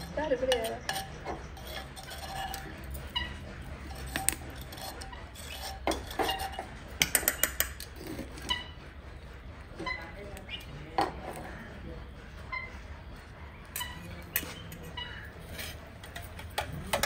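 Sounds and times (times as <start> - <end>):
metal spoon clinking in steel bowl: 0.5 - 2.6.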